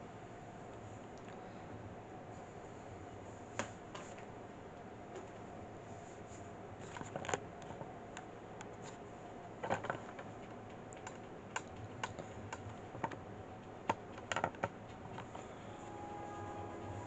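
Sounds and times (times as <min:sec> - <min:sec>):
faint room hum: 0:00.0 - 0:17.0
sharp clicks and taps: 0:10.2 - 0:15.4.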